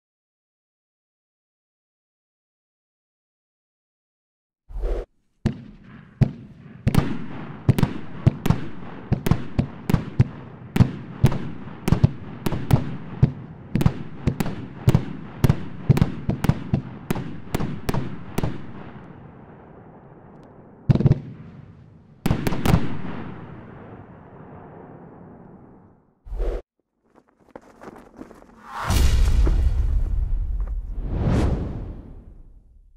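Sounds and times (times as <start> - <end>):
firework cake bangs: 5.4 - 18.6.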